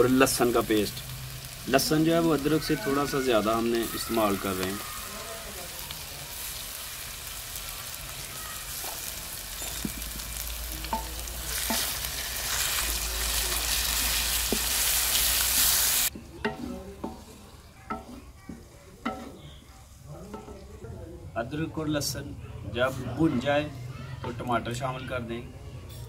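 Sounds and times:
onions sizzling in hot oil: 0.0 - 19.5
spatula scraping and knocking pan: 9.6 - 12.7, 16.4 - 19.6.

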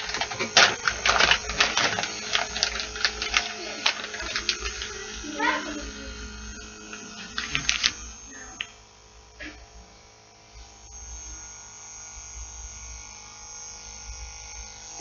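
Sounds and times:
handling clicks and rustles: 0.0 - 5.2
electrical mains hum: 0.0 - 15.0.

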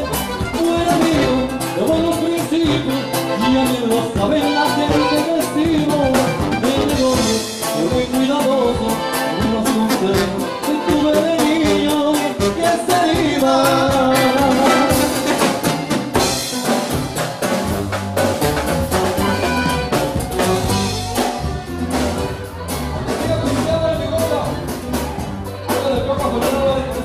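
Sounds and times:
tuba: 0.0 - 23.9
accordion: 0.0 - 27.0
quick steady drumbeat: 0.1 - 10.4, 11.1 - 27.0.

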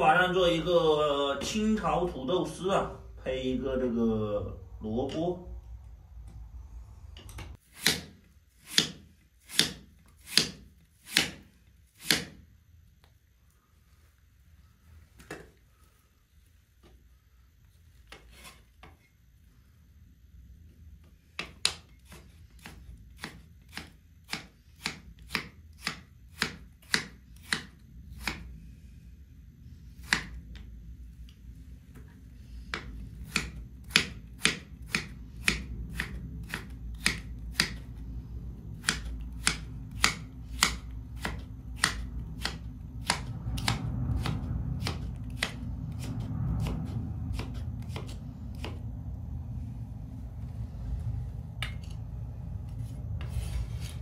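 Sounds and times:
knife chopping on cutting board: 7.7 - 11.4, 12.0 - 12.4, 21.4 - 28.4, 32.7 - 37.8, 38.8 - 45.6.

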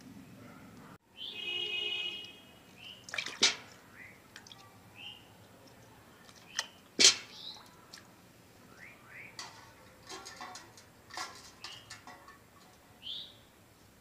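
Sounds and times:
water splashing in a steel pot: 2.8 - 8.2, 9.2 - 13.0.

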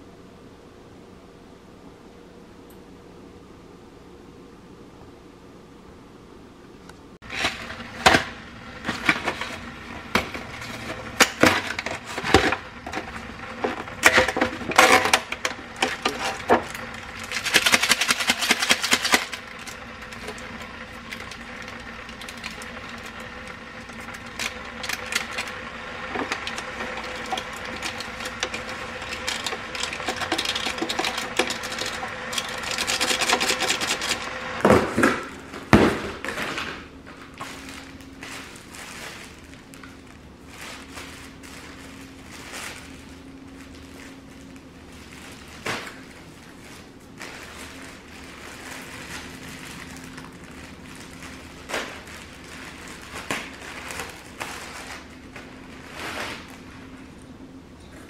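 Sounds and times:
hard objects clicking and clattering: 7.3 - 36.7
rustling: 35.4 - 57.2.

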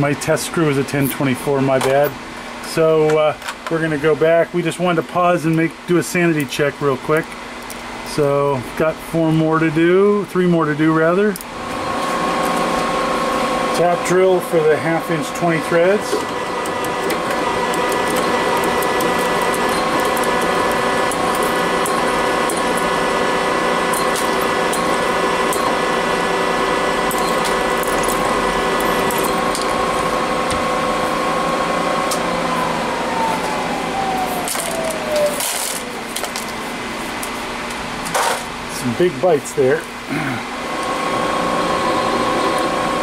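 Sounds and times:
drill motor whining: 11.6 - 36.5
ticking metal chips: 15.3 - 29.8.

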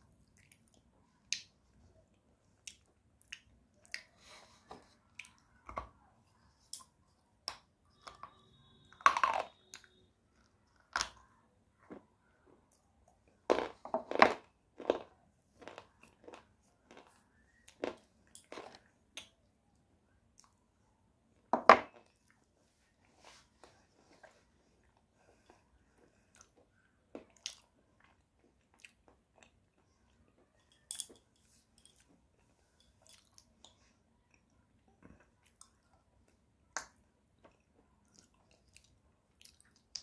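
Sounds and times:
clay being chewed with crunches: 12.7 - 19.4, 32.8 - 40.0.

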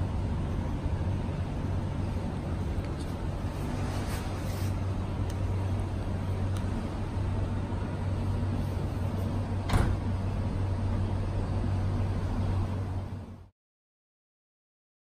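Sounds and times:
steady low hum: 0.0 - 13.5
car boot lid closing thud: 9.6 - 10.1.

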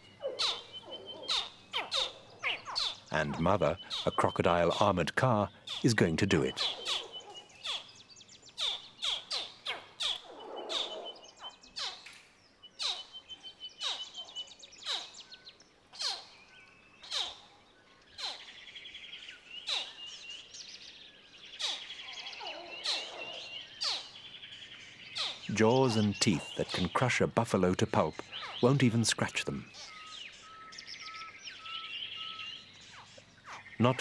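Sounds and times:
crocodile hatchlings chirping: 0.0 - 8.0, 8.6 - 12.0.

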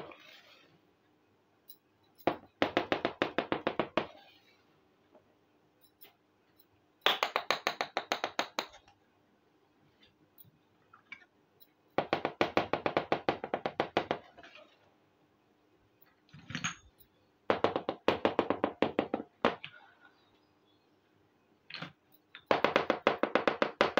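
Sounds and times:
small clink: 5.8 - 6.8.

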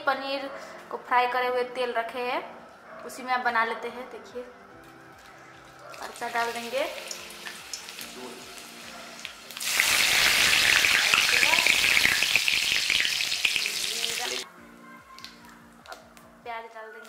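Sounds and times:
hot oil sizzling: 5.9 - 14.5.

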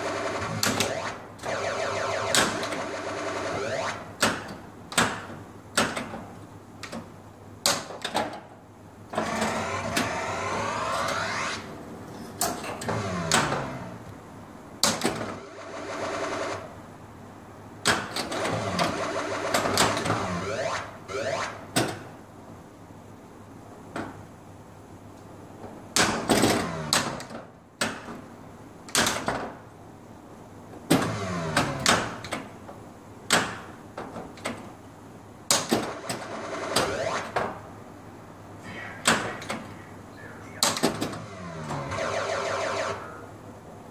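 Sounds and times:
electronic game sound effects: 0.0 - 4.1, 9.2 - 11.7, 18.4 - 21.7, 35.9 - 37.4, 40.2 - 43.3.

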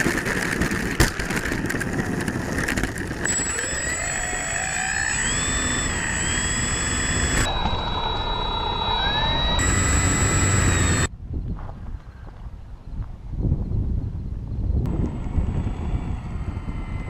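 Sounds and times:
model plane propellers whining: 0.0 - 11.1, 14.9 - 17.0.

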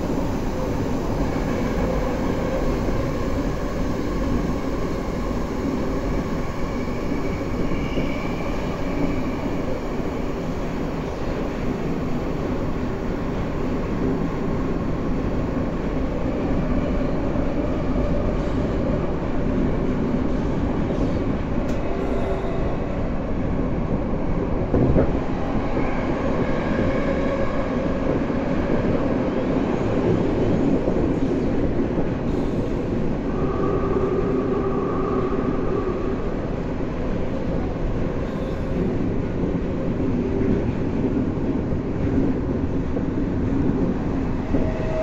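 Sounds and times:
train wheels rumbling on rail: 0.0 - 45.0.

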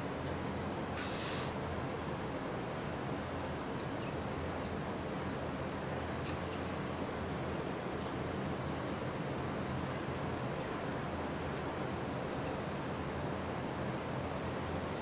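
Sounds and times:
low outdoor rumble and hiss: 0.0 - 15.0
small birds chirping: 0.2 - 1.6, 2.2 - 7.9.

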